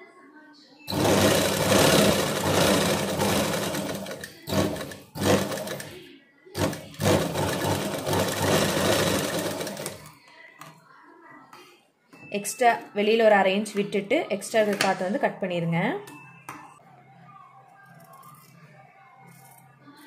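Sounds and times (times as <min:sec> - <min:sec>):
sewing machine running: 0:00.9 - 0:06.0, 0:06.6 - 0:10.1.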